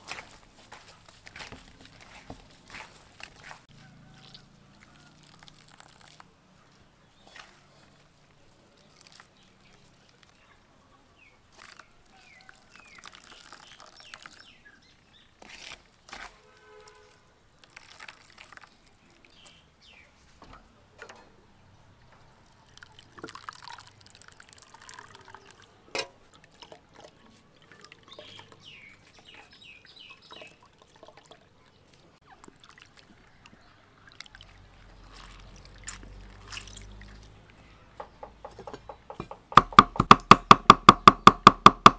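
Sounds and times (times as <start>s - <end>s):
hands squeezing wet coconut: 0.0s - 20.0s, 22.4s - 37.7s
liquid pouring through strainer: 4.8s - 6.3s, 11.5s - 14.6s, 17.6s - 19.3s, 22.5s - 25.7s, 32.4s - 37.4s
liquid dripping into metal bowl: 4.9s - 6.3s, 22.6s - 29.0s.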